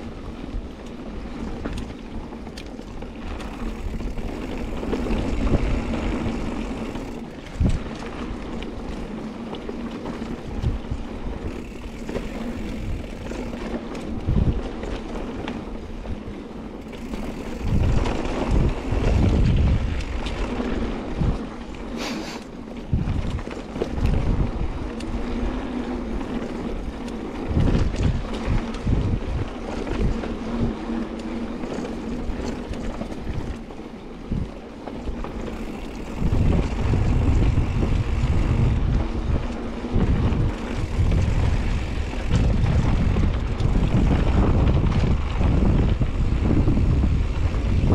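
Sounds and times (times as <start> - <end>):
bike tyres rolling on dirt: 0.0 - 47.9
wind buffeting microphone: 0.0 - 47.9.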